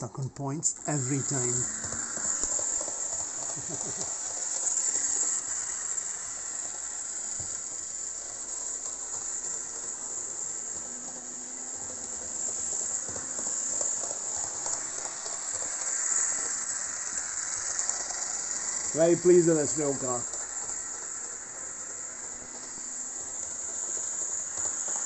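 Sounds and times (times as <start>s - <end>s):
model train motor hiss: 0.8s - 25.0s.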